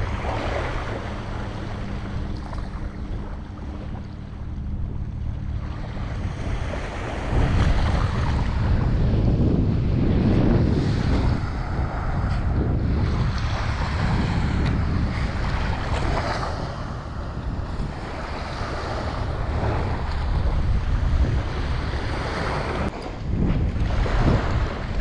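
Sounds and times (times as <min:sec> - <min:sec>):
wind buffeting microphone: 0:00.0 - 0:25.0
surf washing on beach: 0:05.4 - 0:25.0.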